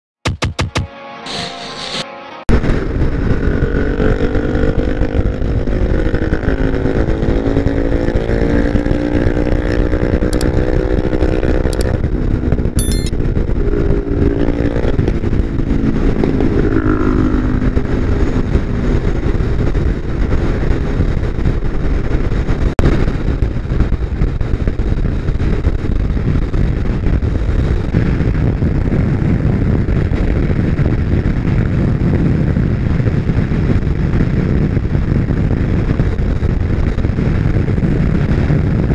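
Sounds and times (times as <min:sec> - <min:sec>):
background music: 0:00.4 - 0:02.5
motorcycle engine at full throttle: 0:02.5 - 0:38.9
wind rush on microphone: 0:02.5 - 0:38.9.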